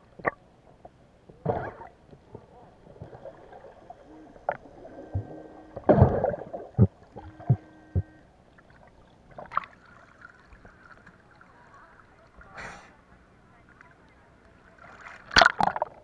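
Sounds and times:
electronic tones: 4.1s - 8.2s
dull underwater knocks: 4.4s - 8.1s.

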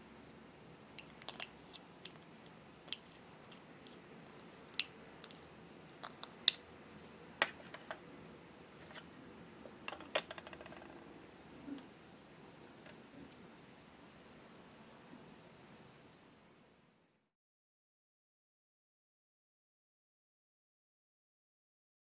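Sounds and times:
small rattling ticks: 9.7s - 11.1s.

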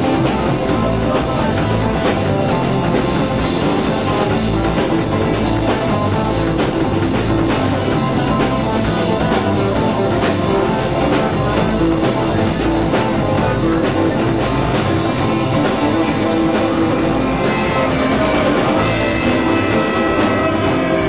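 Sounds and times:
rock band playing: 0.0s - 21.0s.

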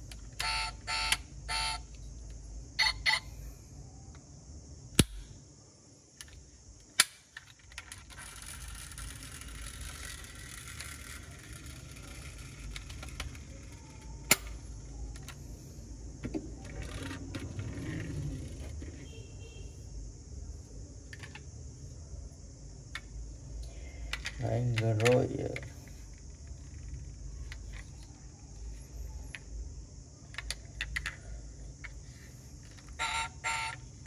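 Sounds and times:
toy parts clicking: 6.2s - 15.4s, 24.1s - 28.2s, 30.3s - 32.0s.

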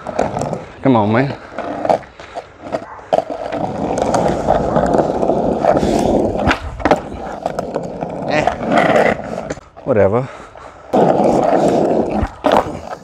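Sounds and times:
skateboard wheels rolling on asphalt: 0.0s - 13.0s
skateboard knocking and clattering: 1.5s - 9.6s.

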